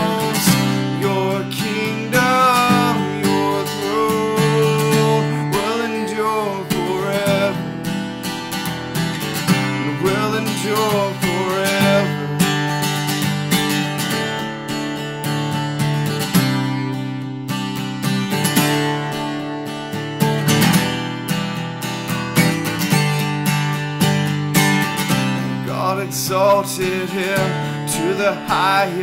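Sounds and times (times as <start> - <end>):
man singing: 0.0 - 7.8, 9.5 - 12.8, 25.4 - 29.0
acoustic guitar strumming: 0.0 - 29.0.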